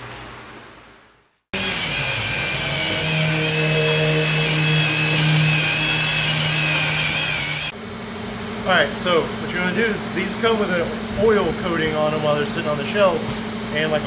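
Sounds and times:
handheld power tool running: 0:01.6 - 0:07.7.

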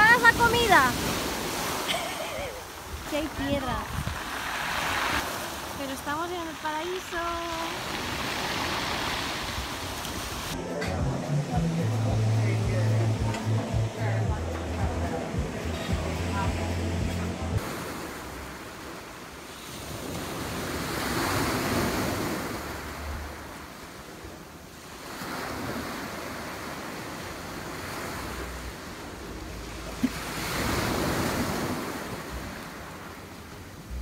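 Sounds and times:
waves washing over pebbles: 0:00.0 - 0:10.6, 0:17.6 - 0:34.0
wind buffeting microphone: 0:02.8 - 0:05.2.

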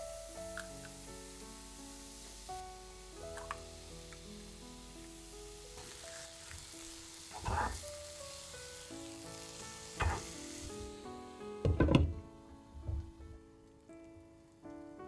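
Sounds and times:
patties sizzling in oil: 0:00.0 - 0:15.0
spatula knocking and scraping pan: 0:10.0 - 0:10.4.

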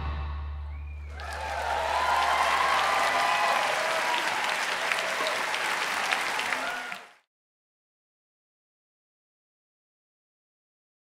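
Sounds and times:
band's low note: 0:00.0 - 0:01.0
audience applauding and cheering: 0:00.8 - 0:07.3.

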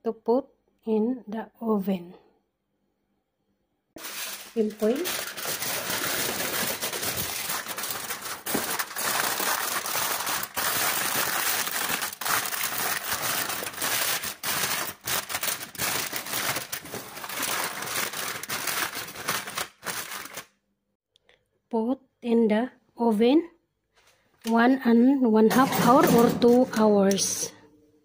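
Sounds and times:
aluminium foil crinkling: 0:04.0 - 0:20.6.

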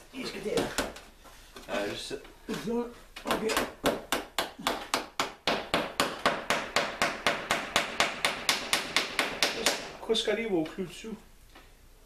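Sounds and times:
hammer tapping nails into wood: 0:03.2 - 0:09.9.

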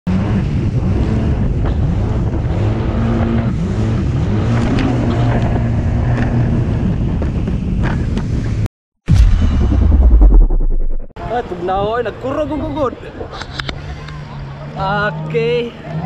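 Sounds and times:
jet ski engine: 0:00.4 - 0:07.8
wind buffeting microphone: 0:00.4 - 0:09.2.

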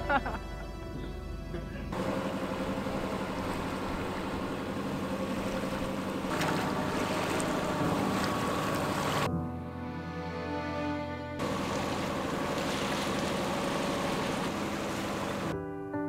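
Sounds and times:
boat engine hum: 0:00.0 - 0:15.6
water rushing along hull: 0:01.9 - 0:09.3, 0:10.5 - 0:15.6.

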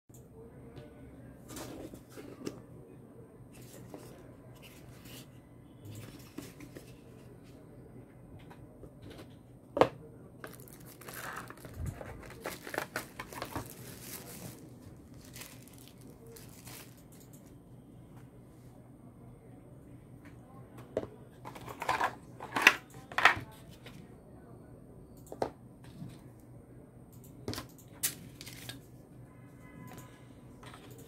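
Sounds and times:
cardboard box handling: 0:10.5 - 0:14.6
tissue paper crinkling: 0:10.5 - 0:17.0.

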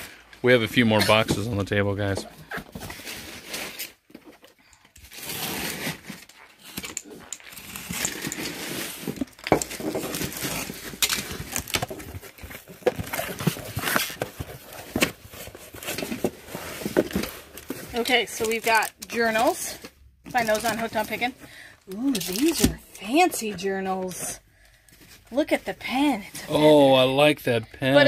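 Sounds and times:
scrapes crackles and clicks: 0:02.5 - 0:21.3.

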